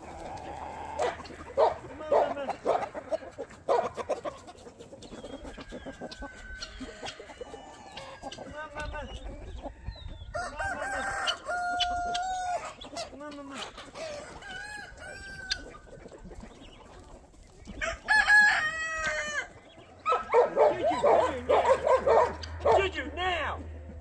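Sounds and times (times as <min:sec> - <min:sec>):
hens clucking: 0:00.0 - 0:24.0
rooster crowing: 0:10.3 - 0:12.6, 0:17.8 - 0:19.5.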